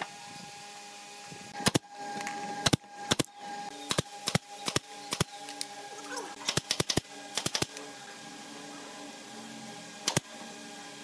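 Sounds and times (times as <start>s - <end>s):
steady tonal hum: 0.0s - 11.0s
sharp cracks of carpentry work: 6.5s - 7.8s.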